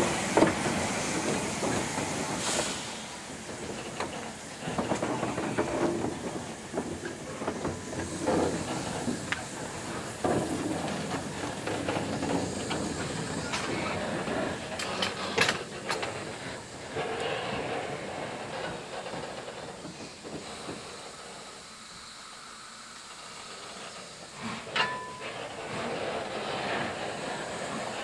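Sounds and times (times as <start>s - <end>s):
steam hissing: 0.0s - 28.0s.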